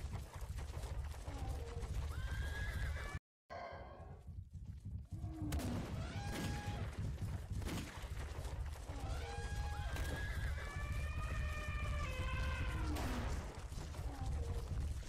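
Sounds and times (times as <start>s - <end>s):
rumble of running hooves: 0.0s - 3.2s, 4.1s - 15.0s.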